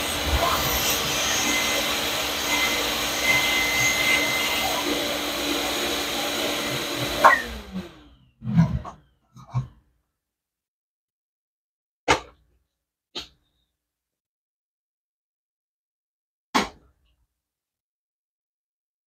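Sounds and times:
shop vac running: 0:00.0 - 0:08.8.

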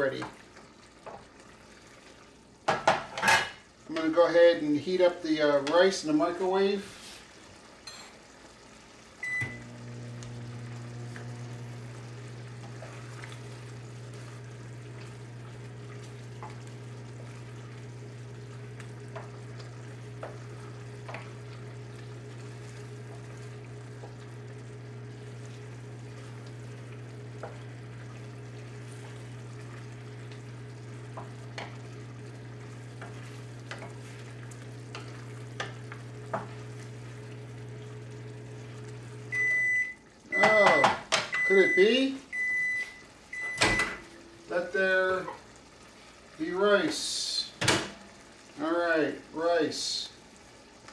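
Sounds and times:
microwave humming: 0:08.9 - 0:49.1
microwave beep: 0:09.2 - 0:16.6, 0:37.5 - 0:44.2.

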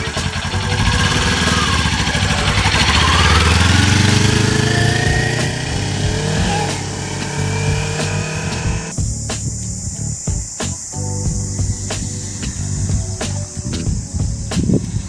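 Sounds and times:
motorcycle accelerating: 0:00.0 - 0:09.0.

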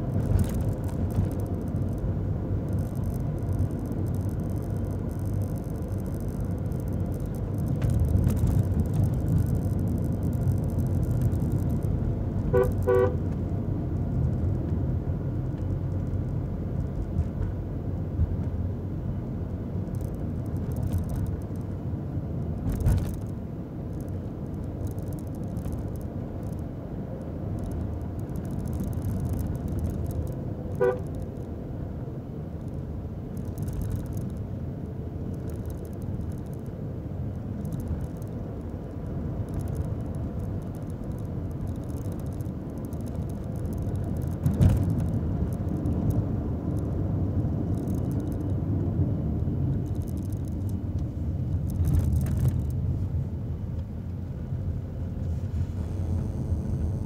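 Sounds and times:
car engine and road rumble: 0:00.0 - 0:57.0
car horn toot: 0:12.5 - 0:13.2, 0:30.7 - 0:31.2.

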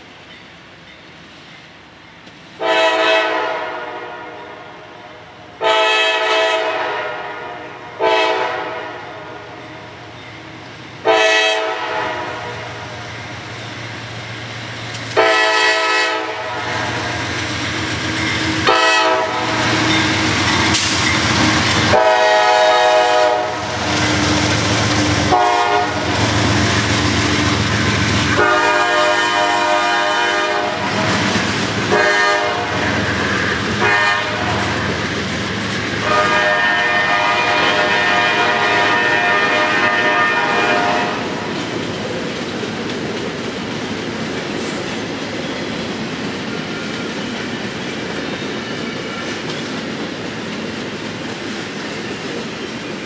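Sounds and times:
freight train rumbling past: 0:00.0 - 0:53.0
locomotive air horn blasts: 0:02.6 - 0:04.7, 0:05.6 - 0:09.5, 0:11.0 - 0:12.9, 0:15.2 - 0:17.2, 0:18.6 - 0:20.8, 0:21.8 - 0:24.2, 0:25.1 - 0:26.2, 0:28.3 - 0:31.1, 0:31.9 - 0:33.1, 0:33.8 - 0:34.8, 0:36.0 - 0:41.3.

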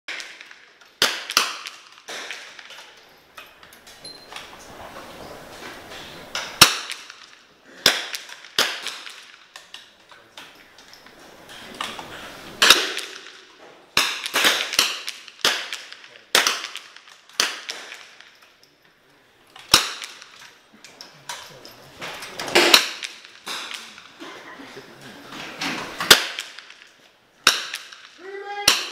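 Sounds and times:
rifle shots cracking: 0:00.1 - 0:02.8, 0:06.4 - 0:09.8, 0:12.6 - 0:18.3, 0:19.6 - 0:20.4, 0:22.5 - 0:24.2, 0:25.9 - 0:28.9.

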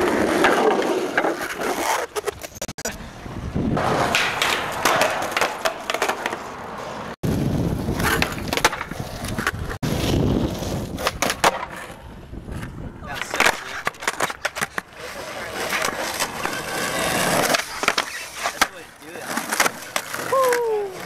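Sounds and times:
skateboard wheels rolling on concrete: 0:00.0 - 0:21.0
skateboard clacks: 0:03.8 - 0:06.8, 0:08.0 - 0:09.8, 0:10.8 - 0:21.0.

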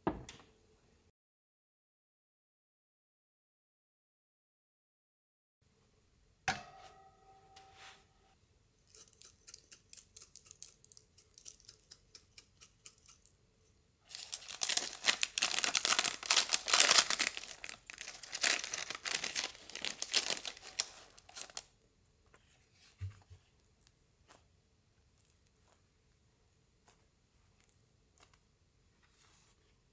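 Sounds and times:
metal clank of baking tray: 0:06.5 - 0:08.0
pastry brush dabbing: 0:06.6 - 0:21.6
bread rolls being torn apart: 0:14.1 - 0:21.7.

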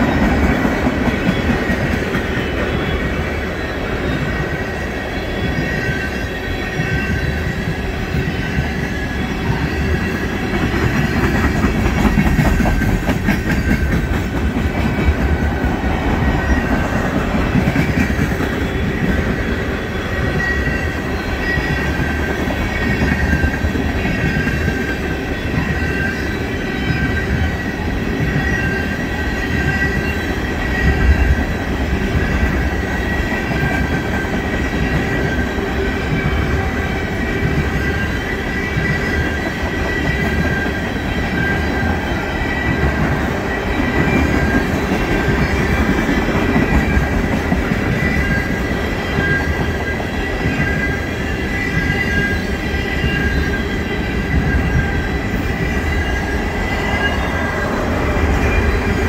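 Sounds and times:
train wheels rumbling and clacking: 0:00.0 - 0:59.0
high wheel squeal: 0:15.9 - 0:59.0.

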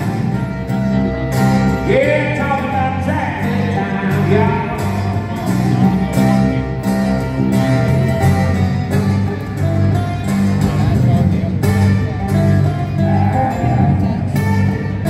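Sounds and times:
live country band: 0:00.0 - 0:15.0
man singing: 0:01.7 - 0:06.1, 0:12.7 - 0:14.9.

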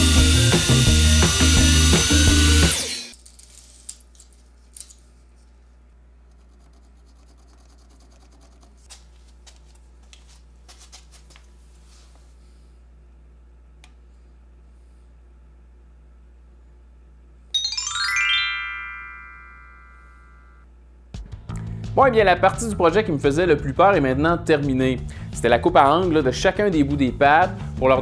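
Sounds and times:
miter saw whining: 0:00.0 - 0:03.2
background music: 0:17.6 - 0:20.3, 0:21.2 - 0:28.0.

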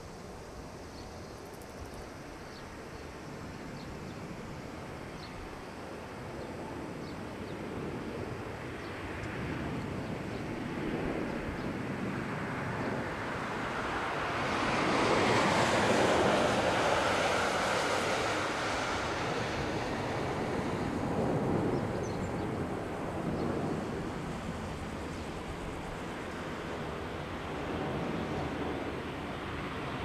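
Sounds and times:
airliner jet roar landing: 0:02.3 - 0:30.0.

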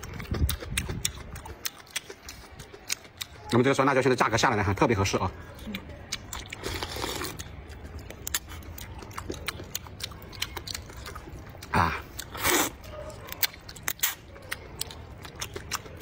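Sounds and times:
wet chewing and mouth clicks: 0:00.0 - 0:16.0
loud noodle slurps: 0:06.6 - 0:07.4, 0:12.3 - 0:12.8.

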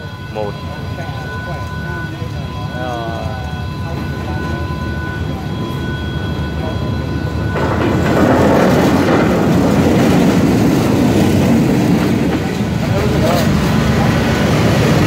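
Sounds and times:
coaches rolling over rails: 0:00.0 - 0:15.0
locomotive engine running: 0:00.0 - 0:15.0.

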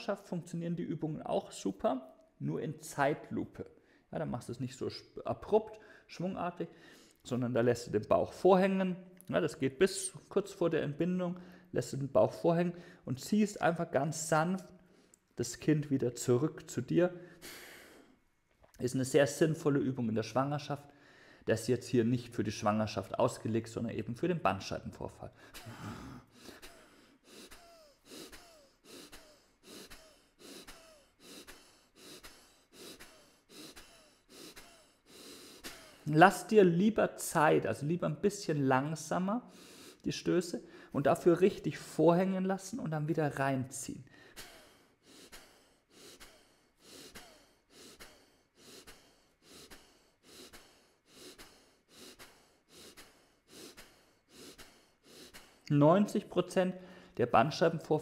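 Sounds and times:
rapid rhythmic breathing: 0:17.2 - 0:18.2, 0:25.4 - 0:36.1, 0:39.4 - 0:41.0, 0:44.1 - 0:55.7.

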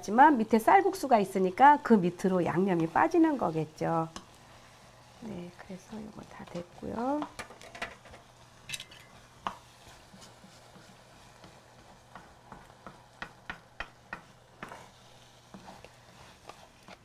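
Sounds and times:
spatula clicking on frying pan: 0:06.6 - 0:09.6, 0:10.8 - 0:14.8.

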